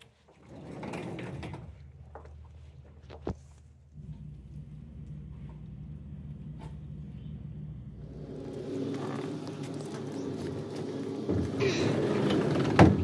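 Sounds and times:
low rumble: 0:00.8 - 0:12.4
sheet-metal barn door pushed: 0:11.3 - 0:13.0.

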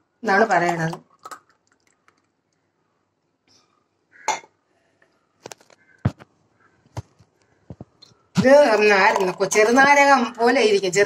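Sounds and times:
thick drink pouring: 0:01.0 - 0:02.5.

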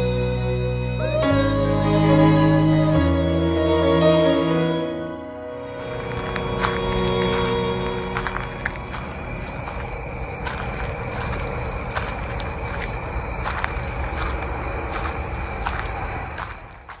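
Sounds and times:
crickets chirping: 0:05.4 - 0:17.0.

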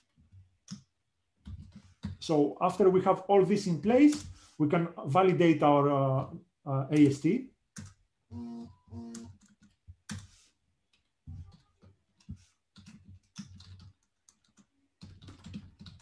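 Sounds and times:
person humming: 0:08.3 - 0:09.3.

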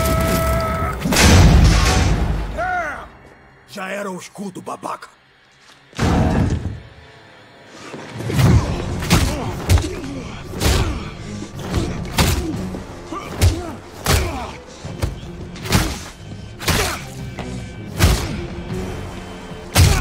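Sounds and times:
dramatic music score: 0:00.0 - 0:20.0.

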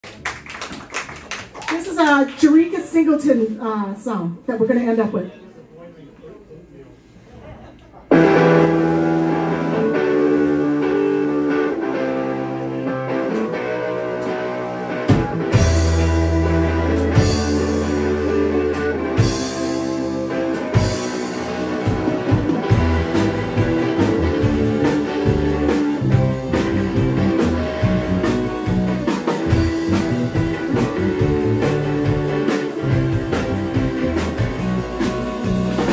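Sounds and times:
bass and drum kit: 0:08.1 - 0:35.9
electric guitar chords: 0:08.1 - 0:35.9
live blues band playing: 0:08.1 - 0:35.9.

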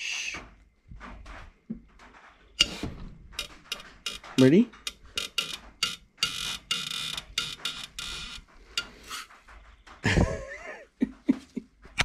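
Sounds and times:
socket ratchet clicking: 0:02.6 - 0:09.2.

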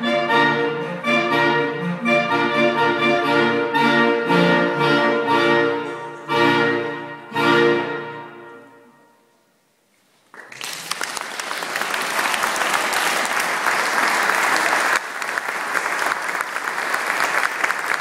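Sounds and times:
audience applause: 0:10.3 - 0:18.0.

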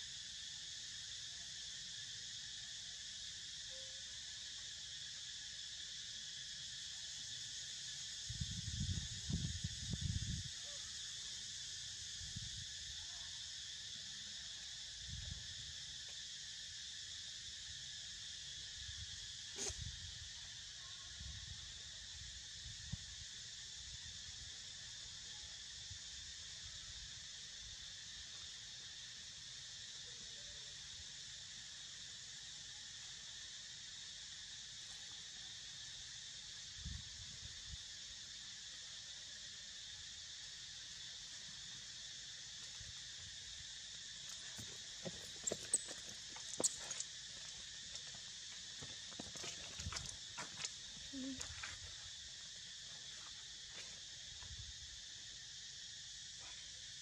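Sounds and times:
insects buzzing: 0:00.0 - 0:57.0.

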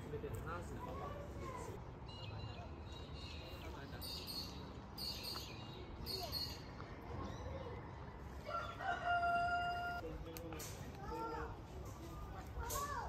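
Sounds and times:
low outdoor background: 0:00.0 - 0:13.0
rooster crowing: 0:08.4 - 0:10.0.

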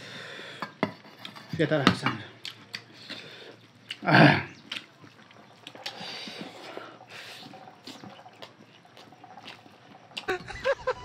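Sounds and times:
wet chewing and lip smacks: 0:02.4 - 0:04.0, 0:04.6 - 0:06.7, 0:07.8 - 0:10.3.

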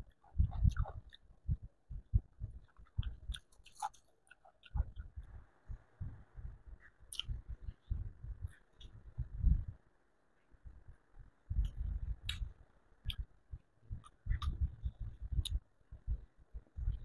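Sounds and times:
wet mouth clicks: 0:02.8 - 0:05.0, 0:07.1 - 0:07.4, 0:14.0 - 0:14.6
person chewing: 0:02.9 - 0:04.8.

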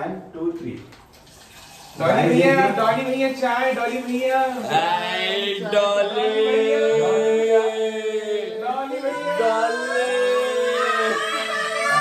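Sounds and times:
person singing long held notes: 0:04.7 - 0:12.0.

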